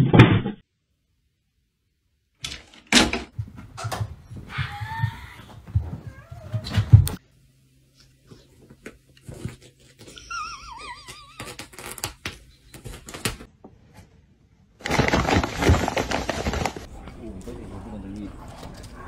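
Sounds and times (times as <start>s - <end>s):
paper bag crinkling: 14.8s - 16.9s.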